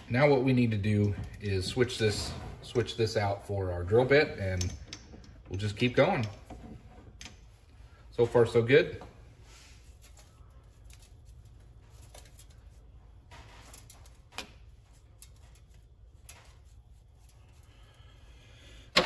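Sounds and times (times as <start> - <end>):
low steady hum: 0.0 - 19.0
metal tooling clicks and taps: 4.5 - 7.4.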